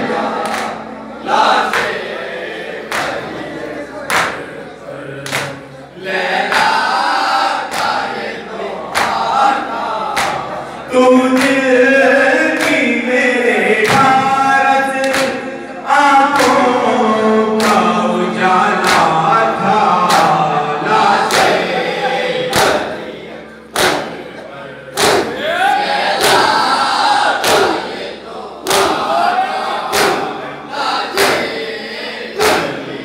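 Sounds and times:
men chanting in unison: 0:00.0 - 0:33.0
hands beating on chests: 0:23.8 - 0:24.2, 0:25.0 - 0:25.4, 0:29.9 - 0:30.3.

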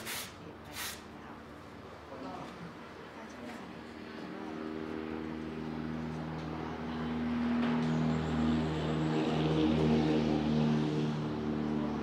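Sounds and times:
motor engine droning: 0:04.1 - 0:12.0.

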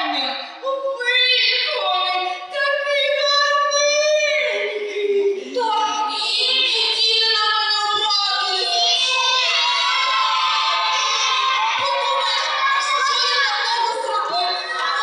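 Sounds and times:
children singing: 0:05.4 - 0:15.0.

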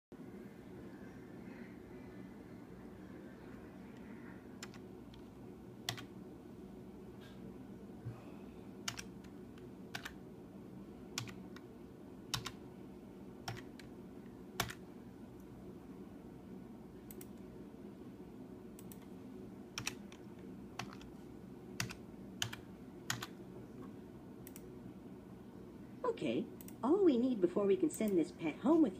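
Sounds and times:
low steady hum: 0:00.1 - 0:28.9
keyboard keystrokes: 0:08.9 - 0:10.2, 0:11.2 - 0:11.7, 0:12.3 - 0:12.6, 0:14.6 - 0:14.8, 0:19.8 - 0:21.1, 0:21.8 - 0:23.3.

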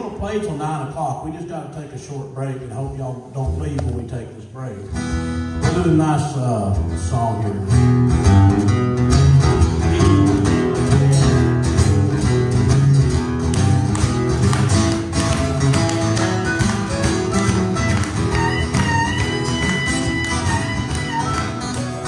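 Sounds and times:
acoustic guitars strumming: 0:04.9 - 0:22.0
harmonica playing: 0:09.8 - 0:10.6, 0:16.1 - 0:22.0.

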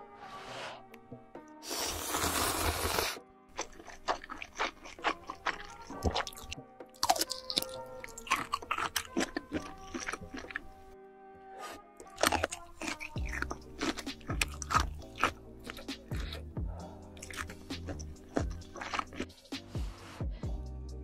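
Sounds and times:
background music: 0:00.0 - 0:21.0
slurping noodles: 0:01.6 - 0:10.9, 0:11.6 - 0:16.5, 0:17.1 - 0:19.4
wet chewing and crunching: 0:01.7 - 0:11.0, 0:12.0 - 0:19.4.

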